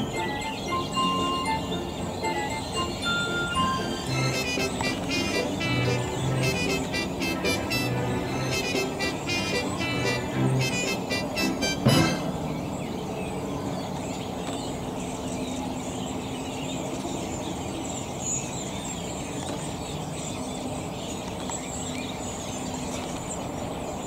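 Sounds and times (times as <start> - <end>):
birds calling high notes: 0.0 - 13.2.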